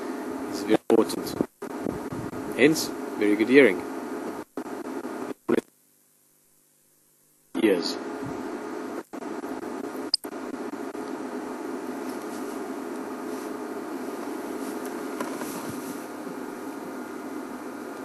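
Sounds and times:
vehicle engine hum and buzz: 0:08.2 - 0:18.0.

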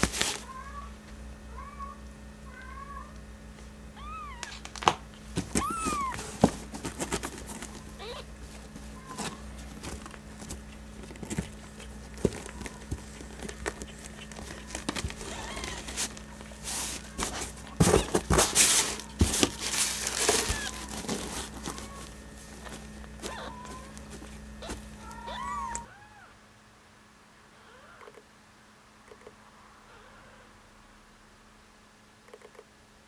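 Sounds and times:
pet pad crinkling: 0:00.0 - 0:00.5, 0:04.4 - 0:25.9
kitten mewing: 0:03.9 - 0:04.6, 0:05.5 - 0:06.3, 0:07.8 - 0:09.5, 0:11.4 - 0:18.2, 0:20.4 - 0:21.1, 0:23.2 - 0:26.4.

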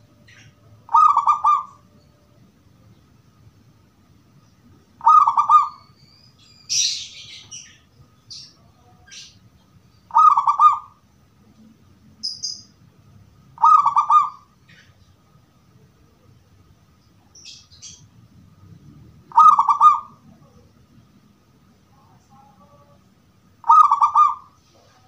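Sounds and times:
dove cooing: 0:00.0 - 0:01.9, 0:05.0 - 0:05.9, 0:10.1 - 0:11.0, 0:13.6 - 0:14.9, 0:19.3 - 0:20.6, 0:23.6 - 0:24.6
high bird chirps: 0:00.2 - 0:02.2, 0:05.0 - 0:11.0, 0:12.2 - 0:12.8, 0:17.3 - 0:18.1.

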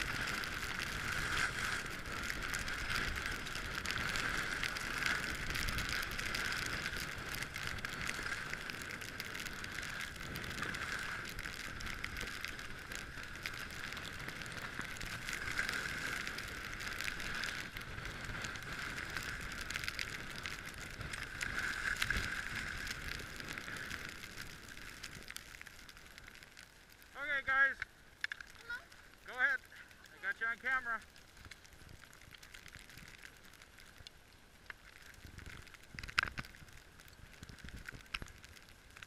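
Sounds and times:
wind rumble on microphone: 0:00.0 - 0:25.4, 0:35.0 - 0:39.0
skis sliding on snow: 0:00.0 - 0:27.7, 0:28.3 - 0:39.0.

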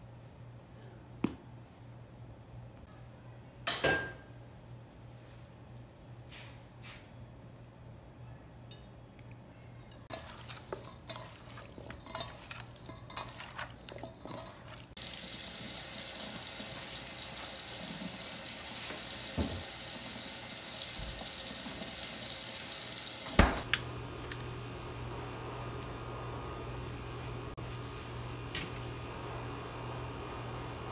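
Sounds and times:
spoon clinking in metal bowl: 0:09.8 - 0:14.8.

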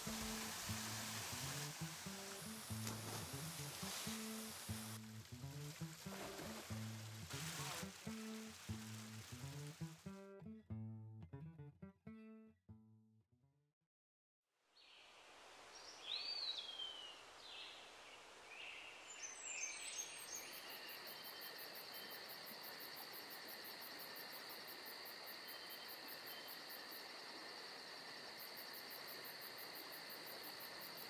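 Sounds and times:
crickets trilling: 0:00.0 - 0:09.8, 0:20.2 - 0:31.0
waterfall rushing into pool: 0:00.0 - 0:10.1.

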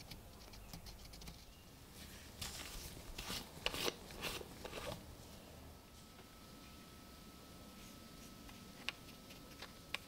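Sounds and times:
toothpick scratching a coin: 0:00.0 - 0:01.5.

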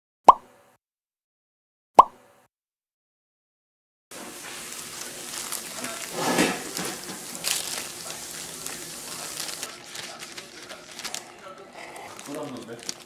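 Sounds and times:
gloves and paper rustling: 0:04.1 - 0:13.0.

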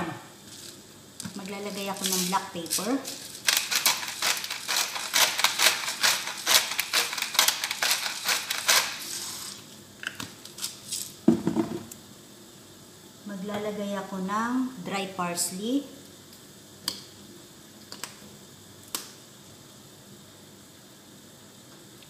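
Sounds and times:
pepper grinder cracking clicks: 0:03.4 - 0:09.0
thump: 0:11.3 - 0:11.8.

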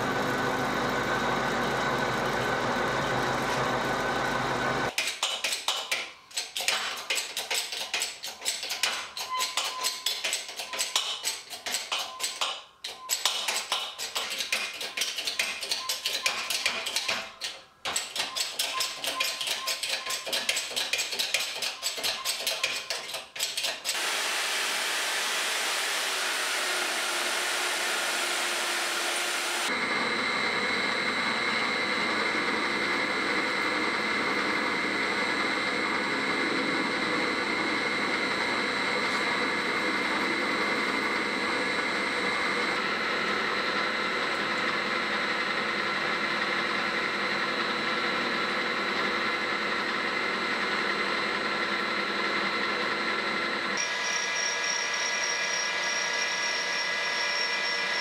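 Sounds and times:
metal lathe whining: 0:00.0 - 0:04.9, 0:24.0 - 0:58.0
hand tools clicking on metal: 0:04.9 - 0:24.0.

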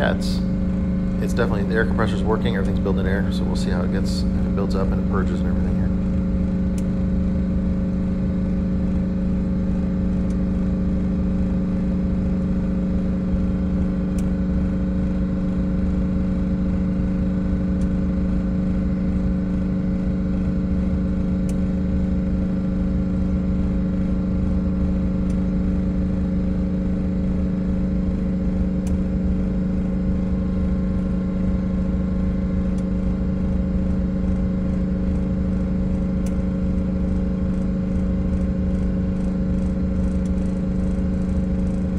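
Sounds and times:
bus engine idling: 0:00.0 - 0:05.9.

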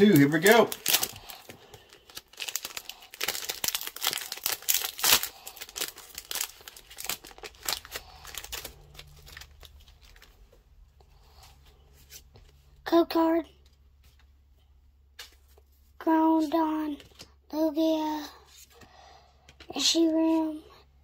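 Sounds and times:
foil wrapper crinkling: 0:00.0 - 0:10.5
trading cards being handled: 0:00.0 - 0:10.6, 0:15.1 - 0:17.4.

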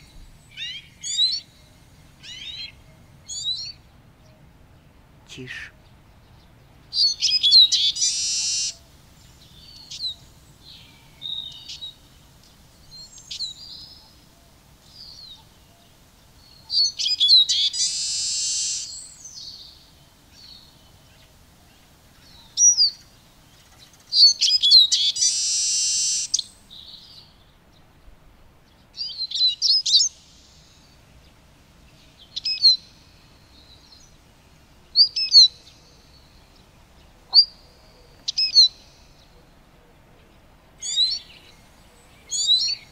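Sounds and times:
bird twittering song: 0:00.0 - 0:42.9
wheezy bird buzz: 0:07.7 - 0:08.8, 0:16.9 - 0:19.2, 0:24.4 - 0:26.5.

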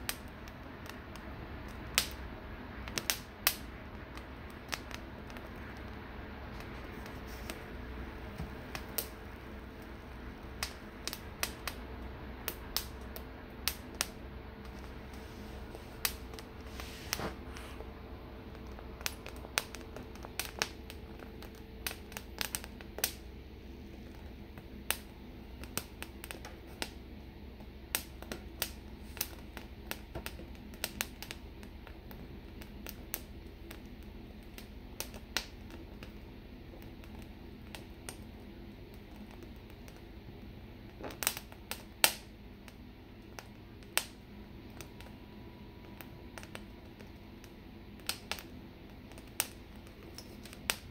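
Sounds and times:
gas burner rush: 0:00.0 - 0:50.9
pepper skin crackling and popping: 0:00.0 - 0:50.9.

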